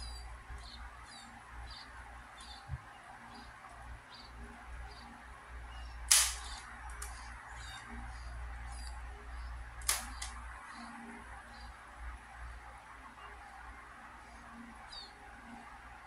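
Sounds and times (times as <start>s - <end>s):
fidget spinner clicks: 6.1s - 7.3s, 9.8s - 10.4s.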